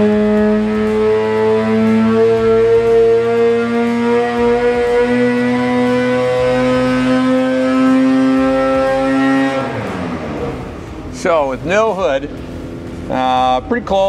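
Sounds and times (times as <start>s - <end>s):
snowmobile engine at high revs: 0.0s - 11.0s.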